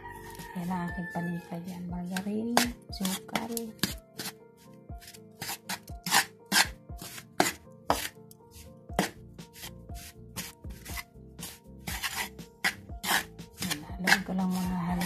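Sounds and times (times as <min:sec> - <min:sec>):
utensil scraping in metal basin: 0:05.0 - 0:15.0.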